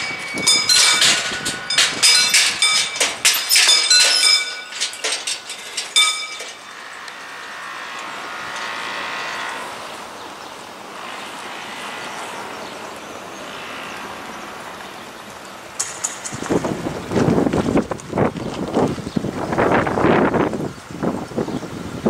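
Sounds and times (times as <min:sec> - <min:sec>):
mechanical bell ringing: 0:00.0 - 0:07.1.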